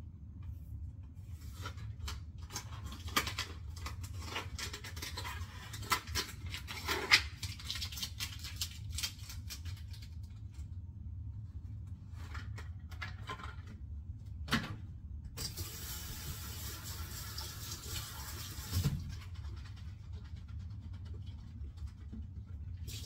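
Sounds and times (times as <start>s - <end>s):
steady low hum: 8.8s - 16.5s.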